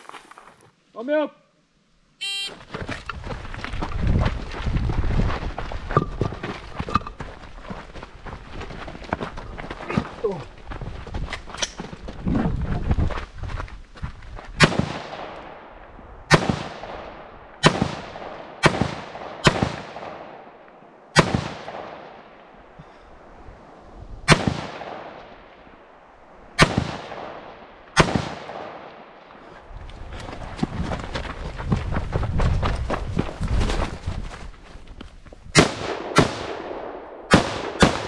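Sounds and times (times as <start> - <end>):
rifle shots with echo: 14.6 - 15.7, 16.3 - 22.5, 24.3 - 25.4, 26.6 - 29.3, 35.6 - 38.0.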